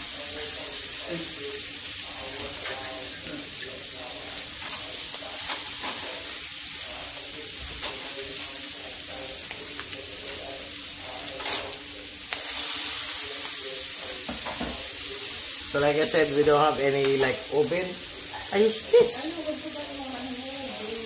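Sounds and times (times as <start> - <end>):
fish sizzling in a frying pan: 0.0 - 21.0.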